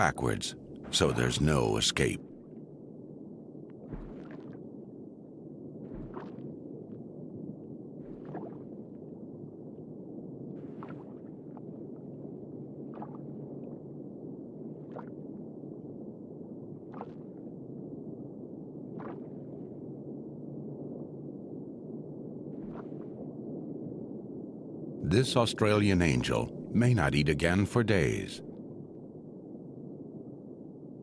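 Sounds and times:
watery surge: 3.8 - 4.7, 5.8 - 7.0, 8.0 - 9.0.

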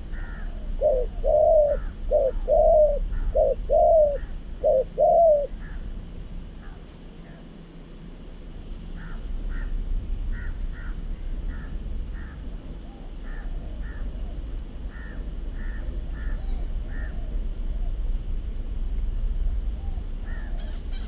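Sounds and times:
steady low rumble: 0.0 - 21.0
crows cawing: 0.1 - 5.9, 8.9 - 12.5, 13.2 - 14.1, 14.9 - 17.2, 20.2 - 20.8.

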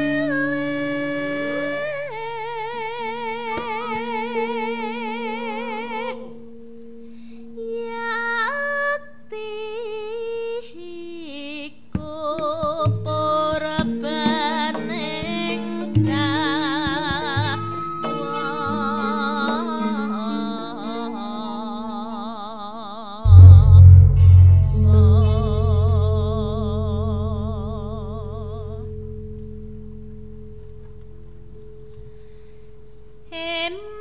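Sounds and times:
woman singing with vibrato: 0.0 - 6.3, 7.6 - 28.9, 33.3 - 34.0
sustained metallophone tones: 23.3 - 28.3
low struck notes: 23.3 - 31.2.

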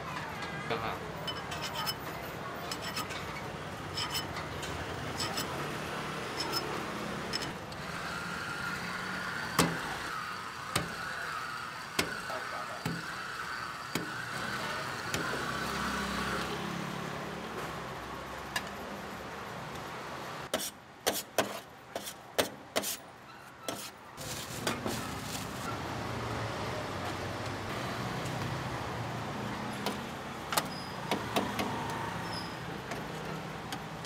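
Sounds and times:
electric meat slicer motor whine: 7.7 - 16.5.

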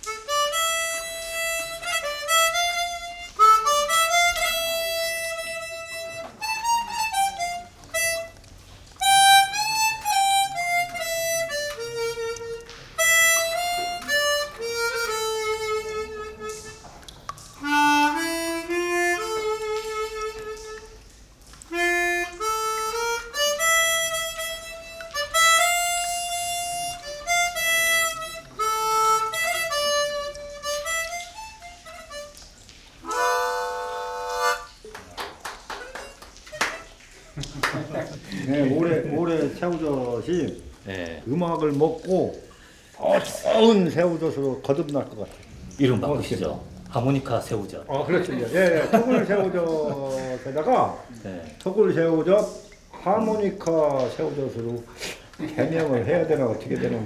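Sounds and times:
harmonica melody: 0.0 - 34.9, 35.8 - 37.2.

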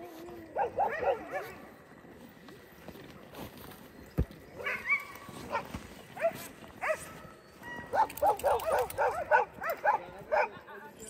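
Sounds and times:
sled dogs barking and yelping: 0.0 - 2.7, 4.5 - 10.6.

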